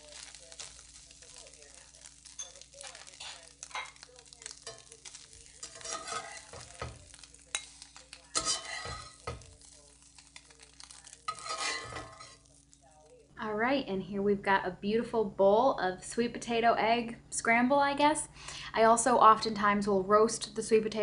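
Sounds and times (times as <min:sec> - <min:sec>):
food sizzling in pan: 0:00.0 - 0:13.6
metal spatula scraping skillet: 0:00.1 - 0:12.7.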